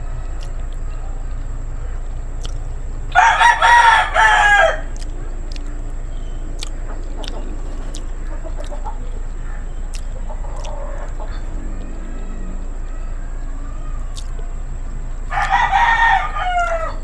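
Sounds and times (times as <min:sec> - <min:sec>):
rooster crowing: 0:03.1 - 0:05.1, 0:09.4 - 0:17.0.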